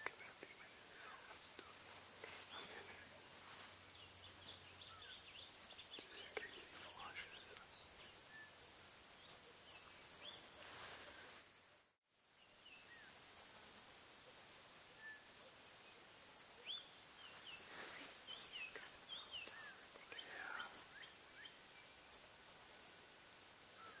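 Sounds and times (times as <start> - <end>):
bird chirps: 0.0 - 8.6
insects droning: 0.0 - 24.0.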